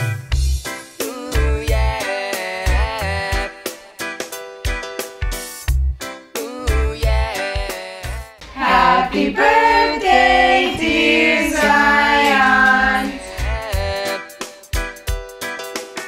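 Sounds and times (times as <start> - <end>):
person singing: 8.5 - 14.3.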